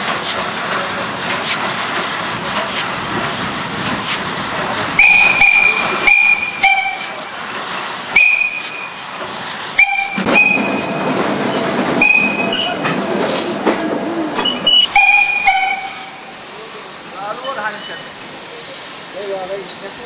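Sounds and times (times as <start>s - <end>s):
steam hissing: 0.0s - 20.0s
steam locomotive whistle blasts: 5.0s - 7.2s, 8.2s - 9.0s, 9.8s - 11.0s, 12.0s - 12.7s, 14.4s - 16.4s.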